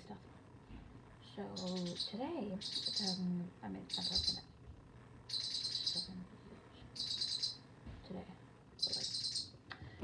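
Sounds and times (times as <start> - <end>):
high trilled chirps: 5.3 - 6.1.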